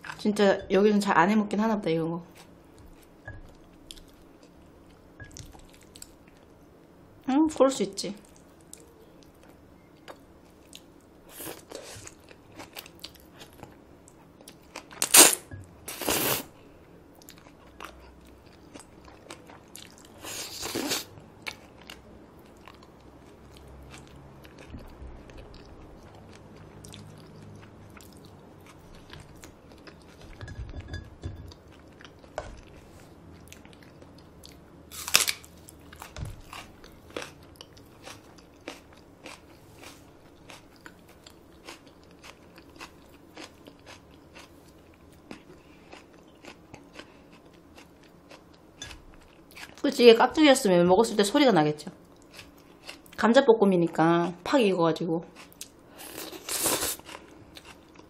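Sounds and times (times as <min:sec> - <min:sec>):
noodles being chewed: 0:31.7 - 0:49.8, 0:55.4 - 0:58.0.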